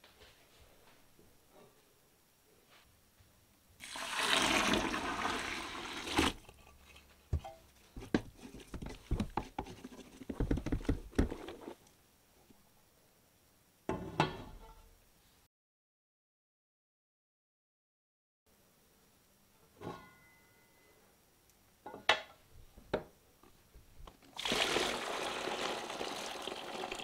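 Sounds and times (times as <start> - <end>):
water pouring into a pot: 3.8 - 6.4, 24.4 - 27.0
wooden spoon stirring and knocking: 6.2 - 11.8.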